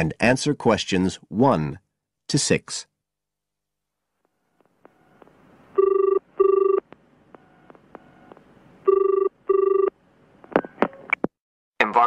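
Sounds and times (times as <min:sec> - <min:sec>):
telephone ringing: 0:04.9 - 0:10.0.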